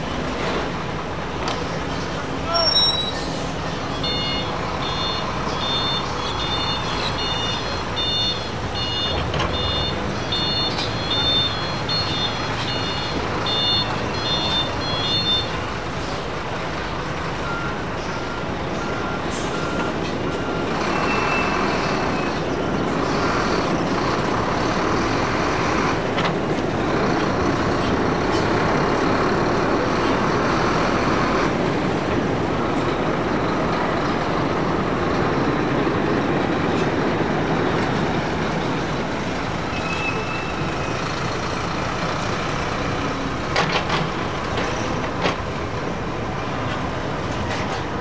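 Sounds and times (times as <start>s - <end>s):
high electronic beep: 4.0s - 15.5s.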